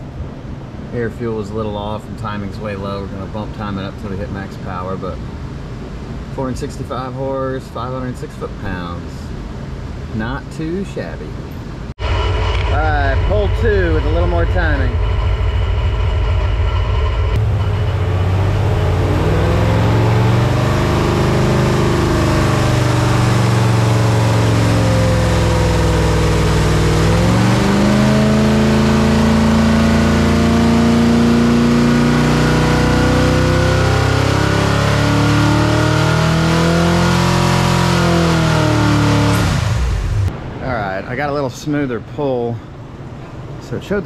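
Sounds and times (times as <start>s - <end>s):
engine revving under load: 12.0s - 40.4s.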